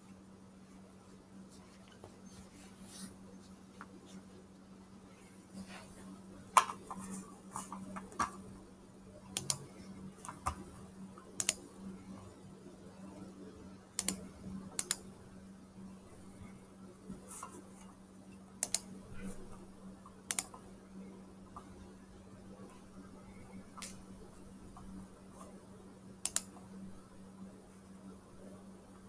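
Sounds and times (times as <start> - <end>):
steady low hum: 0.0 - 29.0
computer mouse and keyboard clicks: 9.3 - 10.7, 11.4 - 11.7, 14.0 - 14.2, 14.8 - 15.1, 18.6 - 18.9, 20.2 - 20.6, 26.2 - 26.6.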